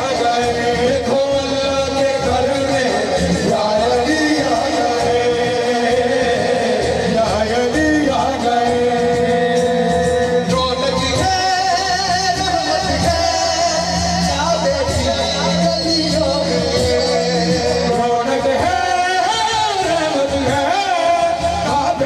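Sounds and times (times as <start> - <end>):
man singing into a microphone: 0.0 - 22.0.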